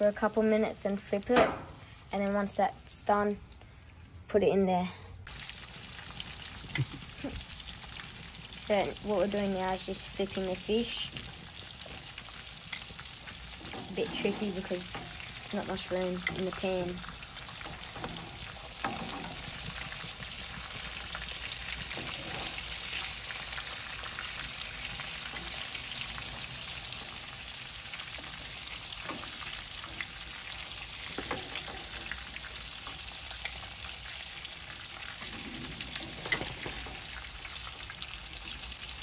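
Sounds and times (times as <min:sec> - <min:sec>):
fish fillets sizzling in oil: 0:05.3 - 0:39.0
tongs clicking against pan: 0:12.7 - 0:13.0, 0:15.8 - 0:16.6, 0:33.3 - 0:33.6.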